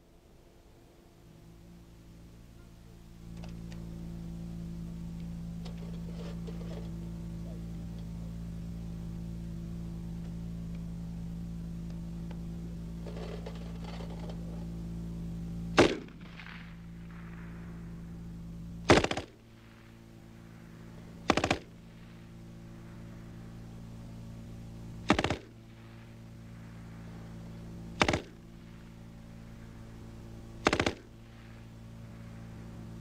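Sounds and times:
low hum: 0:00.0 - 0:33.0
machine gun bursts: 0:18.9 - 0:19.4, 0:21.2 - 0:21.7, 0:25.0 - 0:25.5, 0:28.0 - 0:28.4, 0:30.6 - 0:31.1.

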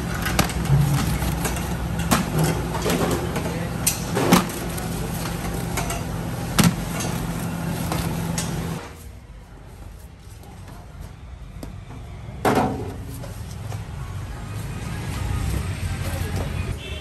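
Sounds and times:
metal baking trays clanking: 0:00.0 - 0:08.8
low machine hum: 0:00.0 - 0:09.0.

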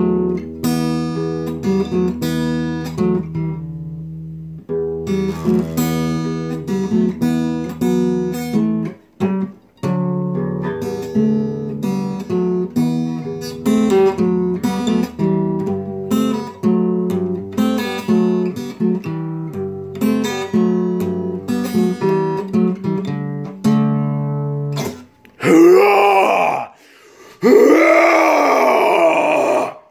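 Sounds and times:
acoustic guitar chords: 0:00.0 - 0:26.6
loud voice: 0:25.4 - 0:26.8.

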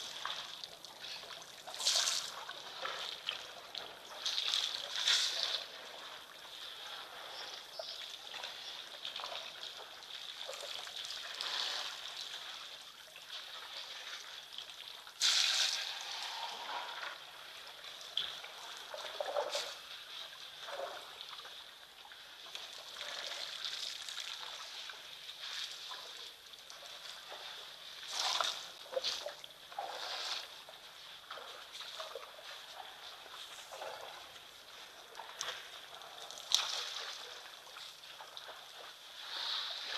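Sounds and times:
water trickling and splashing: 0:00.0 - 0:39.9.

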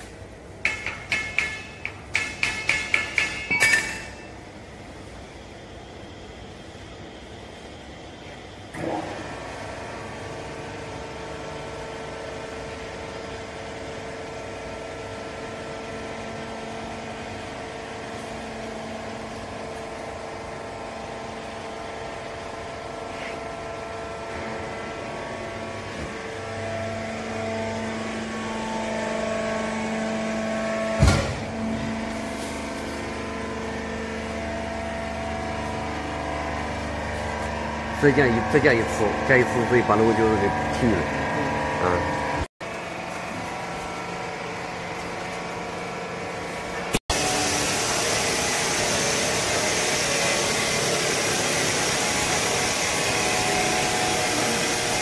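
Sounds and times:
sharp metal clank: 0:00.7 - 0:04.4
hydraulic baler motor humming: 0:08.2 - 0:55.0.

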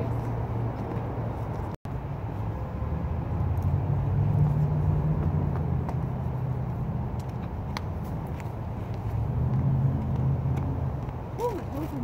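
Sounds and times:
road traffic rumble: 0:00.0 - 0:12.0
vehicle passing: 0:00.0 - 0:12.0.

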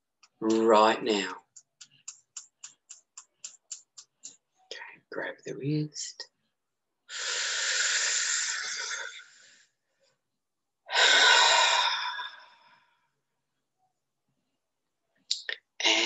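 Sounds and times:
woman breathing deeply: 0:07.1 - 0:09.7, 0:10.9 - 0:12.9.

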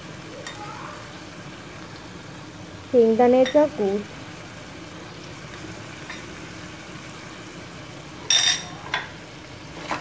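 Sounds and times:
metal spoon clinking on pan: 0:08.2 - 0:09.1.

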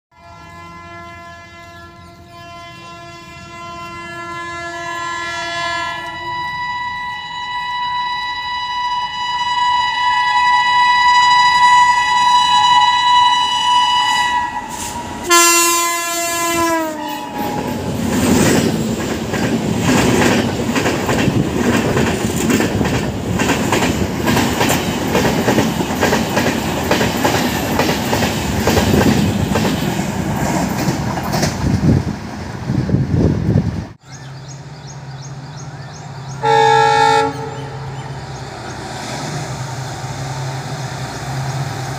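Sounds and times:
train horn blasts: 0:00.1 - 0:17.8, 0:36.4 - 0:38.2
train coaches rumbling past: 0:00.2 - 0:41.9.

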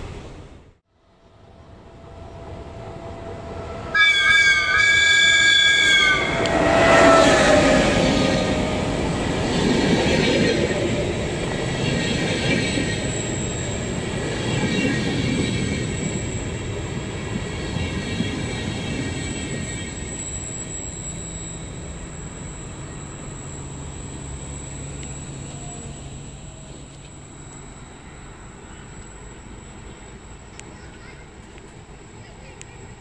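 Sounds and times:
train wheels rumbling past: 0:00.0 - 0:33.0
train horn: 0:01.5 - 0:09.2.

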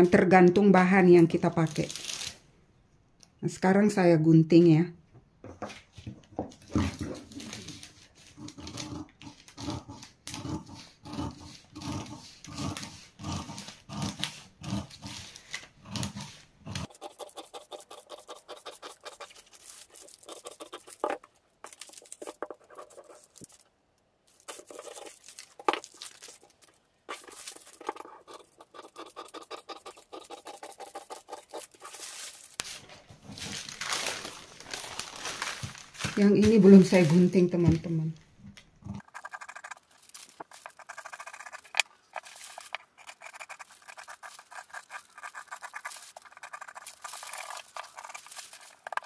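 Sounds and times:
paper rustling: 0:05.7 - 0:10.1, 0:24.3 - 0:37.4, 0:39.2 - 0:49.0
scissors snipping paper: 0:06.9 - 0:23.6, 0:24.3 - 0:32.8, 0:39.0 - 0:49.0.

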